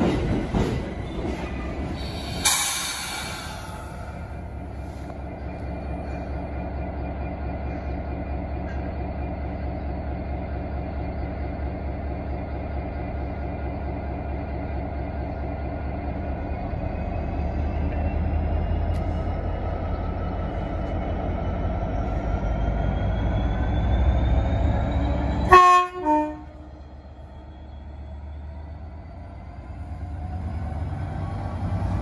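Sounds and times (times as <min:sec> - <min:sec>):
diesel locomotive engine rumble: 0:00.0 - 0:32.0
two-tone train horn: 0:25.4 - 0:26.7.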